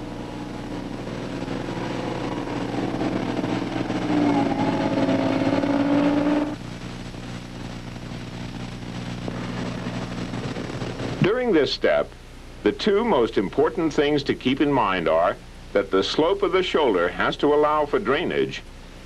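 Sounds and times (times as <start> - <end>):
diesel engine running under load: 0.0 - 11.2.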